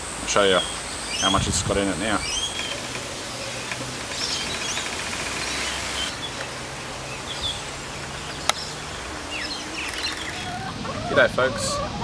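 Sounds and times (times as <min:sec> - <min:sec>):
steady hiss: 0:00.0 - 0:10.4
bird chirps: 0:00.5 - 0:01.4, 0:02.1 - 0:10.7.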